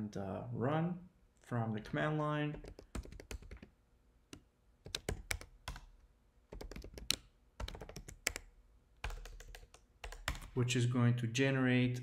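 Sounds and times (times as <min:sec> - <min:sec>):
computer keyboard typing: 0:02.5 - 0:03.7, 0:04.8 - 0:10.6.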